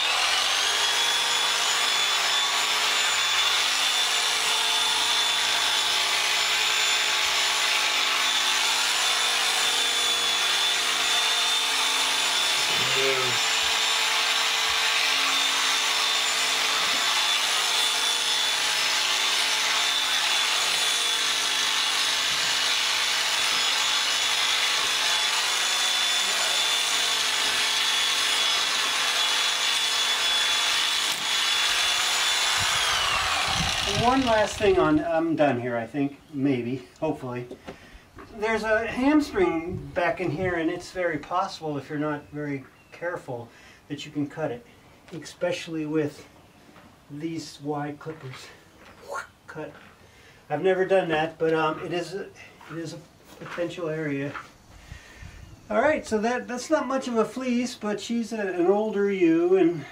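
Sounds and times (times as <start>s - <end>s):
electric clippers whining: 0.0s - 35.0s.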